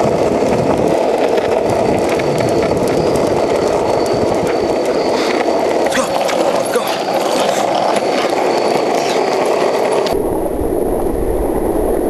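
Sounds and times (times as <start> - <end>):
longboard wheels rolling on pavement: 0.0 - 12.0.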